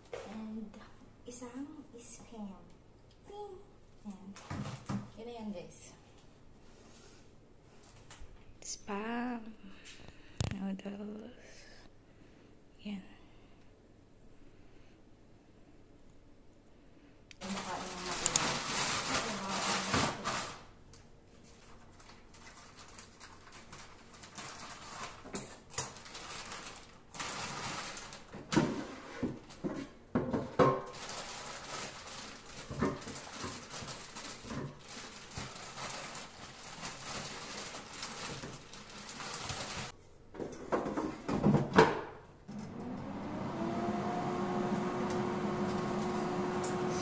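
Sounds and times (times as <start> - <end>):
plastic bag crinkling: 17.4 - 20.8, 21.4 - 28.5, 30.9 - 39.9.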